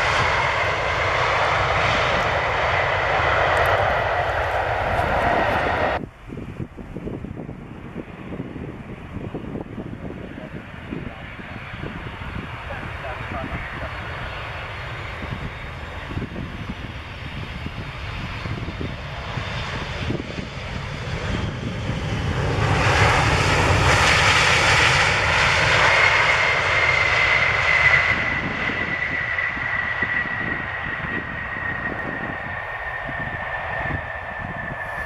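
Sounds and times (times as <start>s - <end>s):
jet airliner engine noise: 0.0s - 35.0s
high whine: 30.3s - 35.0s.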